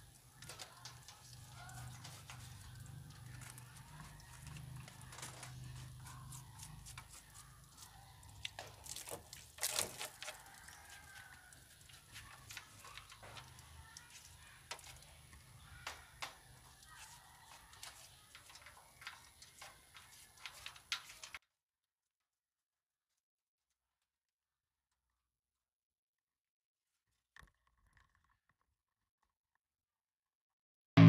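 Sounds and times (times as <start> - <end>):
rabbits chewing grass: 0.0 - 21.4.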